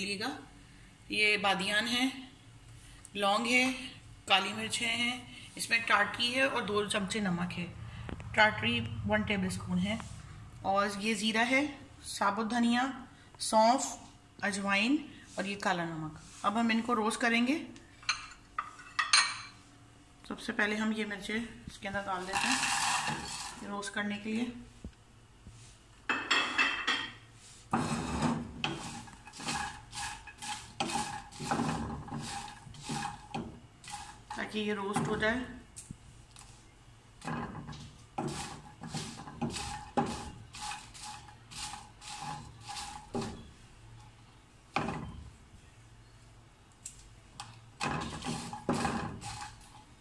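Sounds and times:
chillies scraping in frying pan: 22.0 - 24.0, 27.3 - 35.5, 37.2 - 43.6, 47.8 - 50.0.

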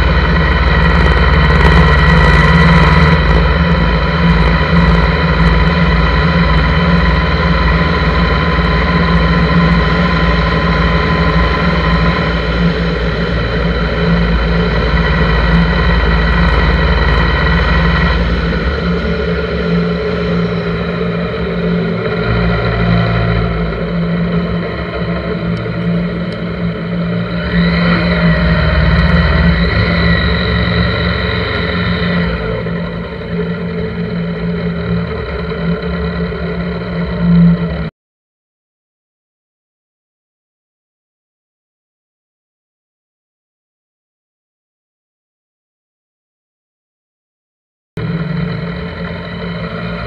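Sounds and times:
motorcycle engine running: 0.0 - 37.9, 48.0 - 50.0
rising and falling whine: 0.0 - 37.9, 48.0 - 50.0.

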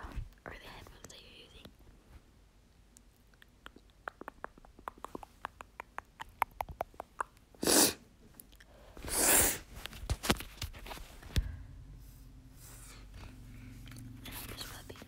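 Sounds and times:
fingertips patting face: 3.4 - 7.5.

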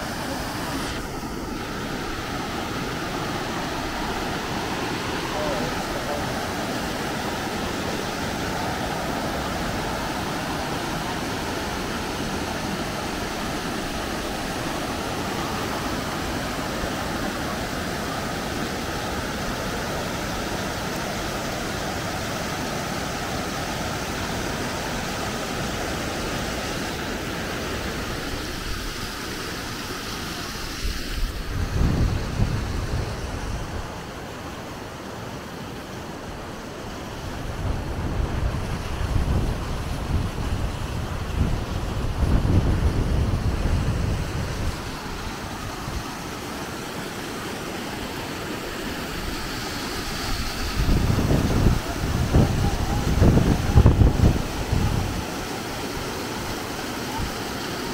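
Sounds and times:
waterfall rushing: 0.0 - 57.9
wind buffeting microphone: 30.9 - 34.0, 37.2 - 46.2, 50.0 - 55.4.

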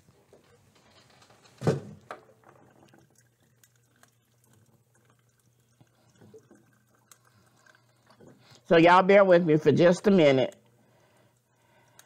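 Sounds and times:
water running into metal mug: 2.3 - 8.5.

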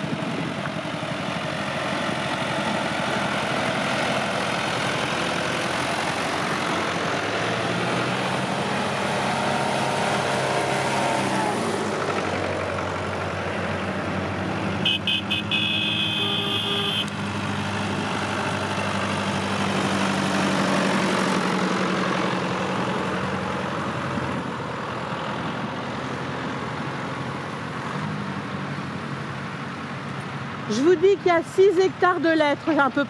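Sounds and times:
tractor engines running: 0.0 - 33.0
horn toots and blast: 14.8 - 17.2.

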